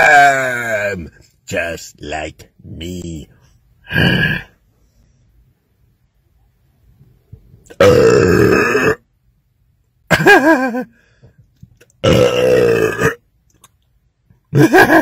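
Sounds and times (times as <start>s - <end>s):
man belching: 3.8s - 4.6s, 7.7s - 9.1s, 12.0s - 13.2s.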